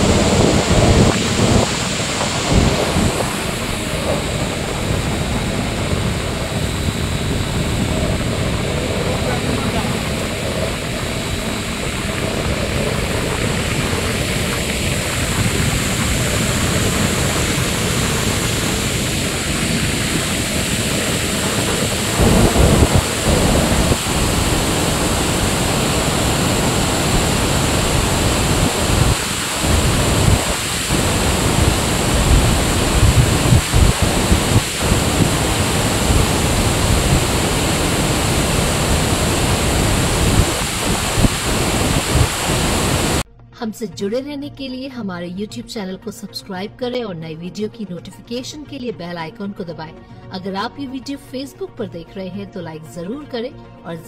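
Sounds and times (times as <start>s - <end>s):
roar of rushing water: 0.0s - 43.2s
wind buffeting microphone: 0.0s - 43.2s.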